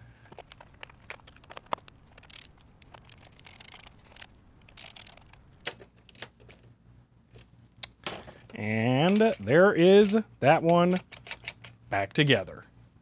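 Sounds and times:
light clicks of handled parts: 7.3 - 9.5.

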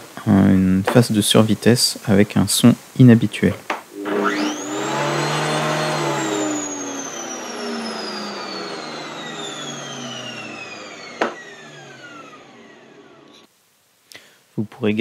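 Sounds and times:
garden shredder motor whining: 3.9 - 13.5.

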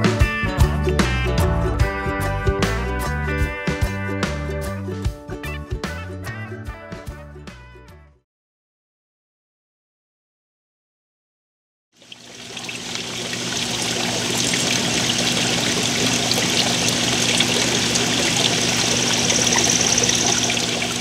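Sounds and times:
pool water trickling and lapping: 12.0 - 21.0.

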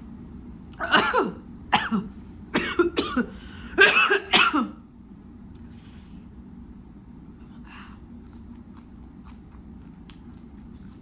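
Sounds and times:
woman coughing: 0.8 - 4.8.

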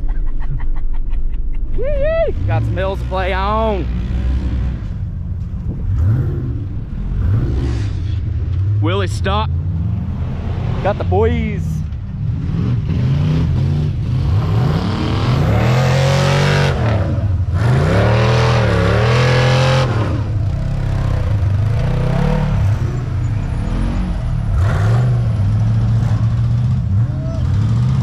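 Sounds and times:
engine revving hard: 5.9 - 11.5, 12.2 - 28.0.

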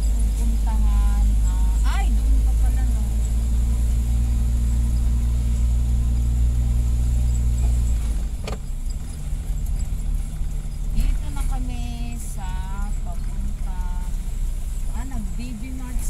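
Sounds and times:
car engine: 0.0 - 16.0
road noise: 0.0 - 16.0.

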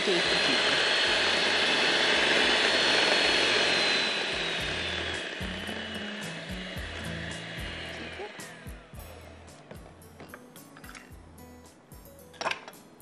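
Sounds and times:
electric mixer motor whine: 0.0 - 9.5.

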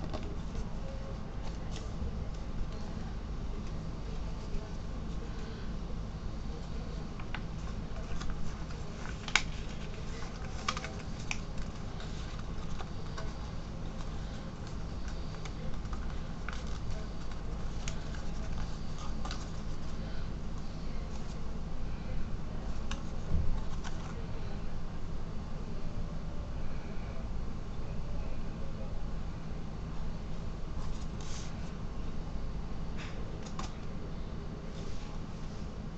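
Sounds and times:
paper folding and crackling: 0.0 - 2.6, 6.6 - 21.5, 22.6 - 24.2, 30.8 - 31.8
steady low hum: 0.0 - 35.9.

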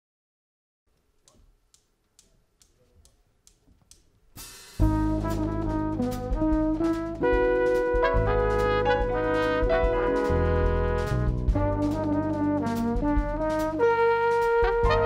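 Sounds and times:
faint regular ticks: 0.9 - 4.4
drums: 3.9 - 15.0
double bass: 4.8 - 15.0
flugelhorn and trumpet melody: 4.8 - 15.0.

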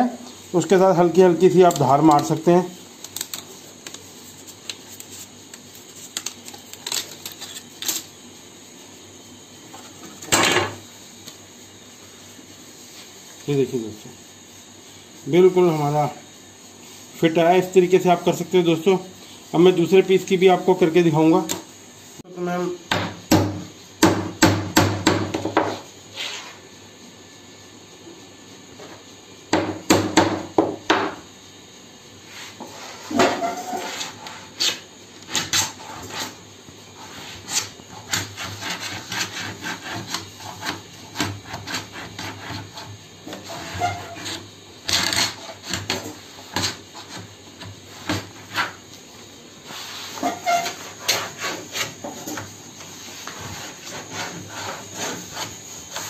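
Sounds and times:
hand tools scraping laminate: 32.4 - 36.4, 37.0 - 48.8, 49.8 - 52.5, 53.1 - 56.0.

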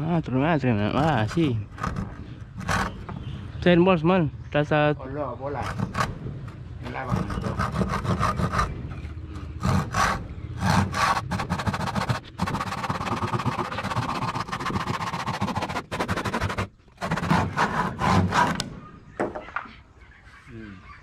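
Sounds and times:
hand tools knocking and scraping: 5.6 - 8.7, 9.4 - 19.7.

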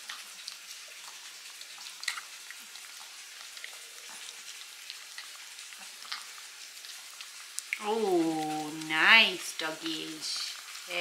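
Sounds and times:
dogs chewing and licking: 0.0 - 7.8.

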